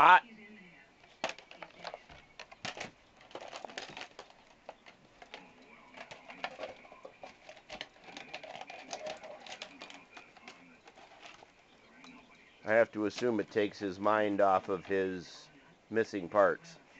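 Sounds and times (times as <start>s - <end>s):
dog chewing a flower pot: 1.0s - 15.7s.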